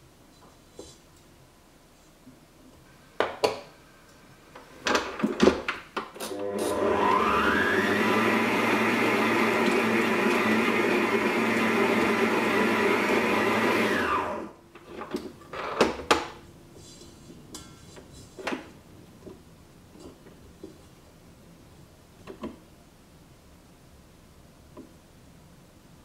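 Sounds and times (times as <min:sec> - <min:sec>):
stand mixer motor winding down: 0:06.3 - 0:14.5.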